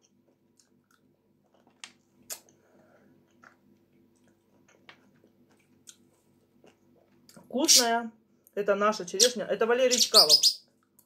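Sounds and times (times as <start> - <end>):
chewing: 3.2 - 7.4.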